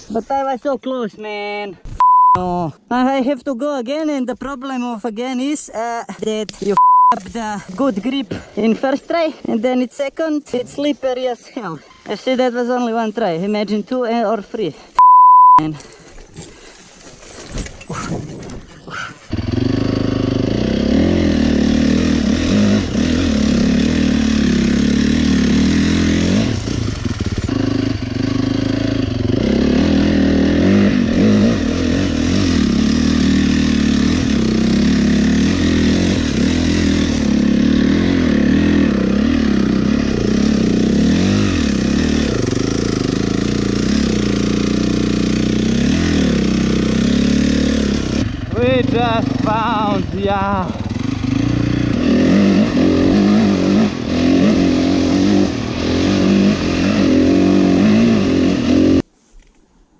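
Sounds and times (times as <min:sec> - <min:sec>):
dirt bike engine revving: 0:19.3 - 0:59.0.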